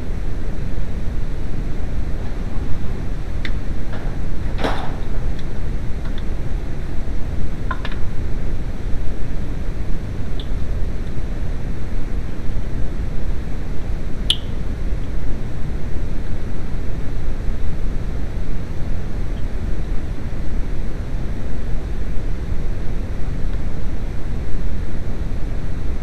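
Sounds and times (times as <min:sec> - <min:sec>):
low rumbling noise: 0:00.0 - 0:26.0
sharp click: 0:14.3 - 0:14.6.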